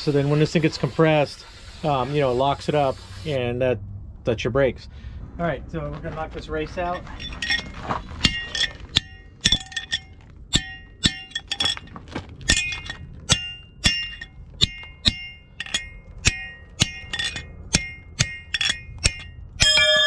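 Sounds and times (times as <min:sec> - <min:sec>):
hammer striking metal: 0:07.2 - 0:11.9, 0:12.5 - 0:20.0.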